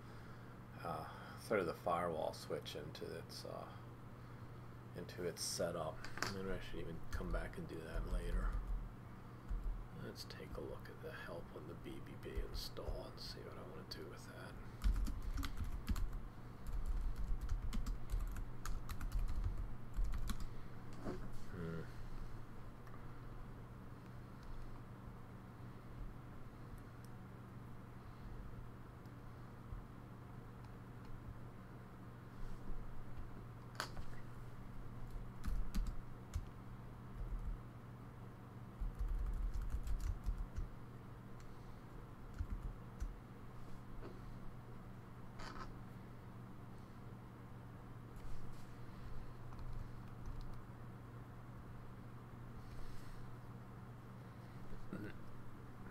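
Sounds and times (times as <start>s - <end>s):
steady low hum: 0.0s - 55.9s
typing on computer keyboard: 14.8s - 20.5s, 35.4s - 36.5s, 38.8s - 40.7s, 42.3s - 43.1s.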